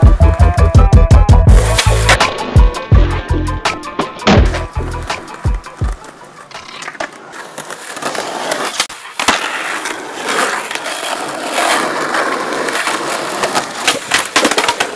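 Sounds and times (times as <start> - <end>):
skateboard wheels rolling on asphalt: 3.9 - 14.9.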